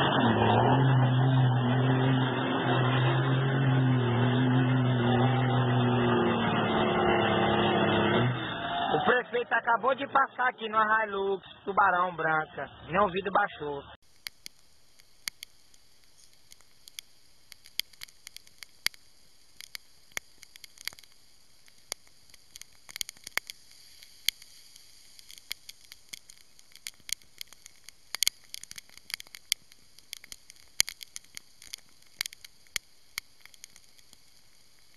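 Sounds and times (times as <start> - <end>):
faint steady hiss: 14.1 - 34.9
raindrops hitting car: 14.1 - 34.9.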